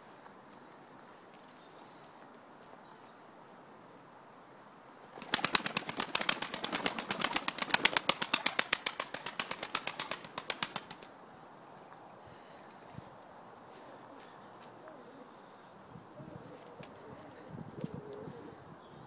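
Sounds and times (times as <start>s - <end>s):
pigeon flapping wings: 5.2s - 11.1s.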